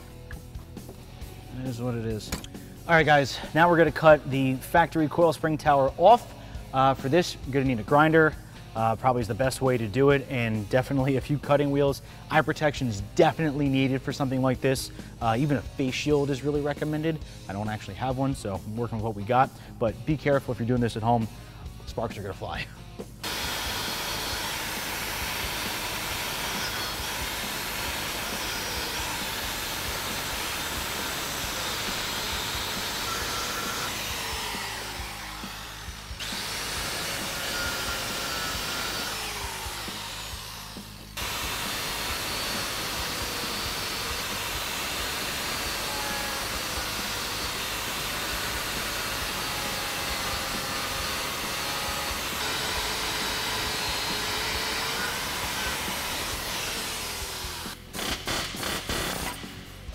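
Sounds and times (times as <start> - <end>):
angle grinder cutting metal: 23.2 - 59.5.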